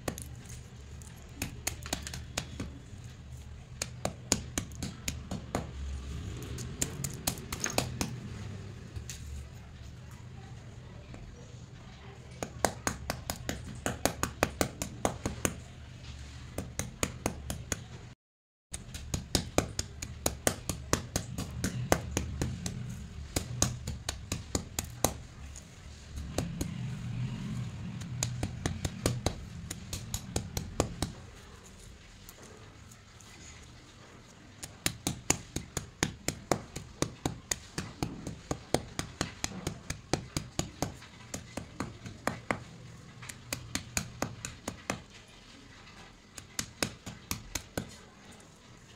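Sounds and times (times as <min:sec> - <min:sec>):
low grinding rumble: 0:25.3 - 0:32.0.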